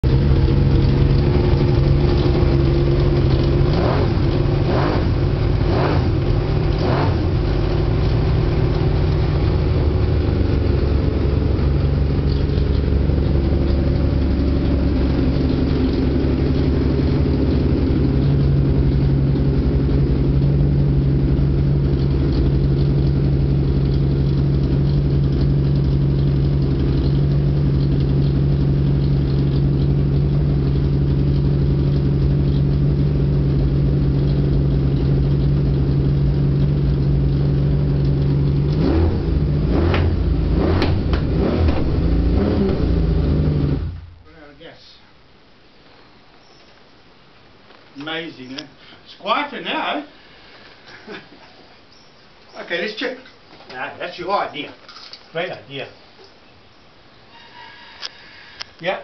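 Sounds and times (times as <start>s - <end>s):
motorcycle engine idling: 0.0s - 41.3s.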